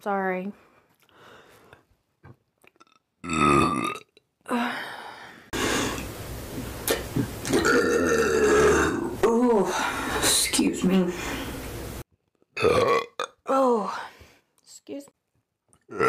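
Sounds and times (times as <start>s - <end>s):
woman burping: 2.9s - 4.2s, 7.5s - 9.7s, 12.6s - 13.4s.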